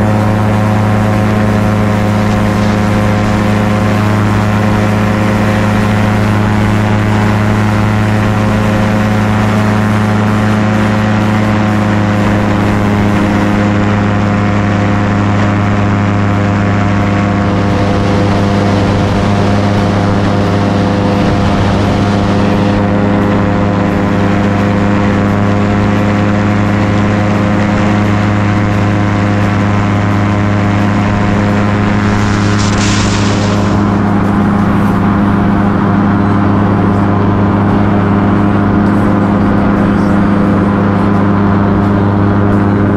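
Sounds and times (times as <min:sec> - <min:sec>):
propeller aircraft engine: 0:00.0 - 0:42.9
rushing air hiss: 0:31.1 - 0:35.4.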